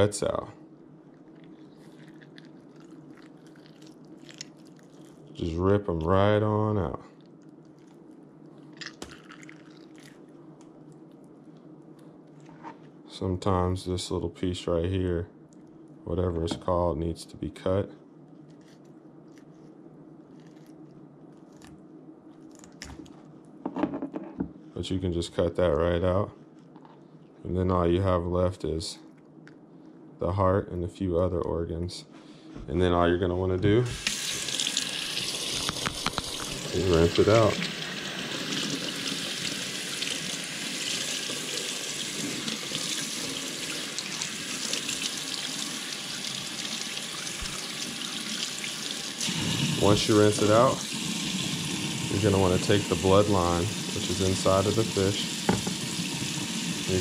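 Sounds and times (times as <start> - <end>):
low steady background hum: 0.0 - 57.0
faucet running: 33.9 - 57.0.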